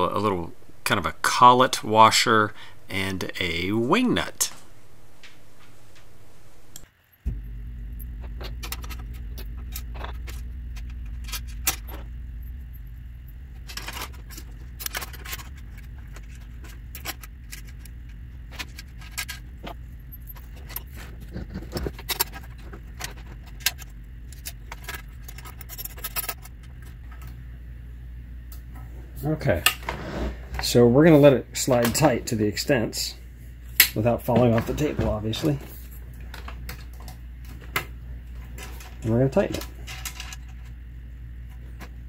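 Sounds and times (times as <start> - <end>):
steady low hum: 0.0 - 42.0
small metal clicks and jingling: 21.8 - 26.6.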